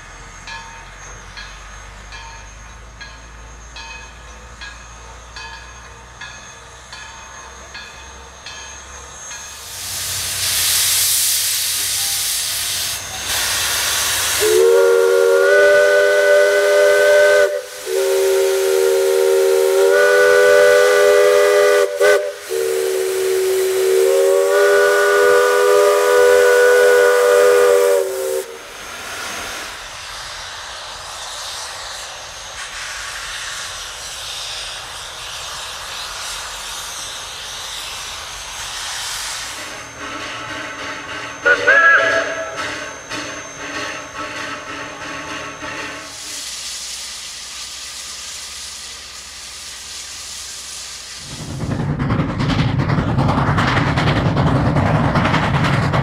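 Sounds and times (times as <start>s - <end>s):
steam venting hiss: 8.3s - 52.1s
steam whistle blasts: 11.7s - 28.7s, 39.5s - 46.9s.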